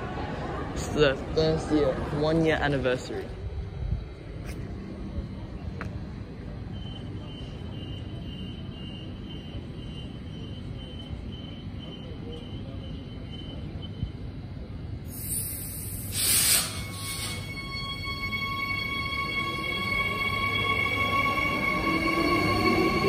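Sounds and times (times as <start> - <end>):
electric train rumbling: 0.0 - 23.0
short loud hiss: 15.1 - 17.6
high beeping: 16.6 - 23.0.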